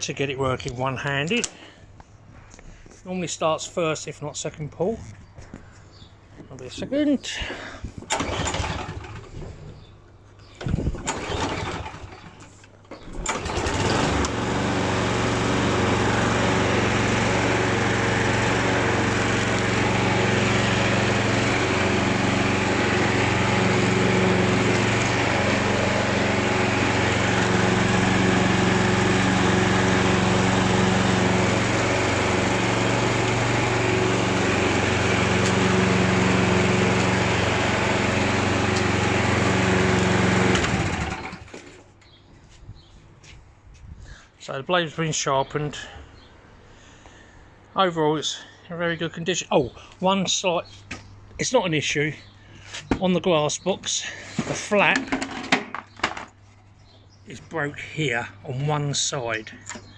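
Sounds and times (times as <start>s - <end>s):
lawn mower engine running: 8.0s - 9.9s, 10.6s - 42.0s, 52.9s - 56.2s
recoil starter cord pulls: 8.1s - 9.5s, 10.6s - 16.6s, 35.3s - 37.4s, 40.3s - 41.8s.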